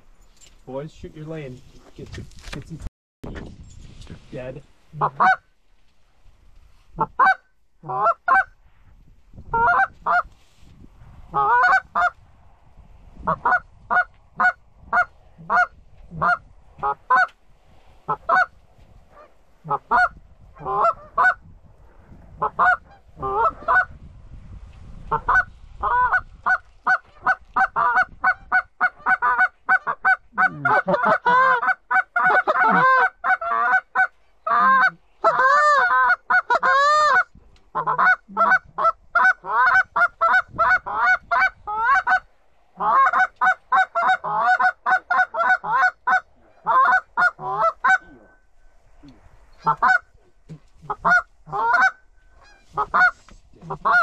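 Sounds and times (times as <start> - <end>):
goose honking: 5.0 - 5.4, 7.0 - 8.5, 9.6 - 10.2, 11.3 - 12.2, 13.3 - 17.3, 18.1 - 18.5, 19.2 - 21.4, 22.4 - 23.9, 25.1 - 42.2, 42.8 - 48.4, 49.6 - 50.1, 50.9 - 54.0.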